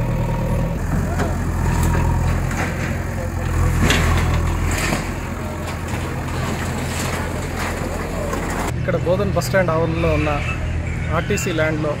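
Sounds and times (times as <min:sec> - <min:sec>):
diesel engine droning: 0:00.0 - 0:12.0
people talking: 0:02.7 - 0:12.0.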